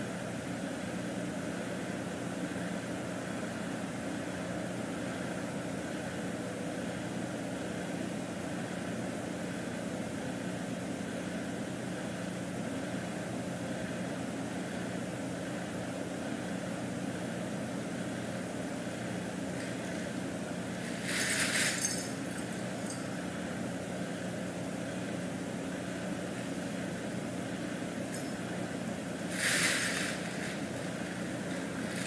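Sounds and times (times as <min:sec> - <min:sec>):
low mechanical hum: 0:00.0 - 0:32.0
fabric tunnel rustling: 0:20.7 - 0:22.9, 0:29.2 - 0:32.0.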